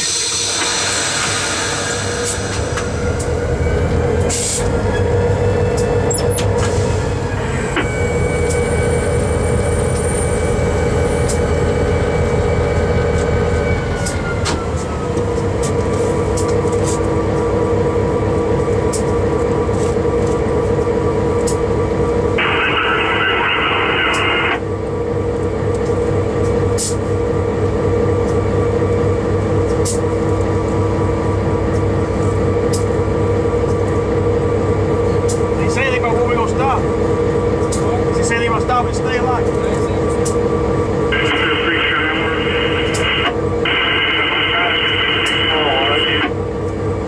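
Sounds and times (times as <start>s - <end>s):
locomotive engine running: 0.0s - 47.0s
radio static burst: 22.4s - 24.6s, 41.2s - 46.3s.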